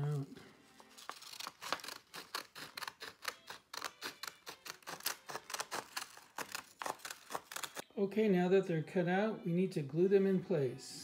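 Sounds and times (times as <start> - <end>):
scissors cutting paper: 0.8 - 7.8.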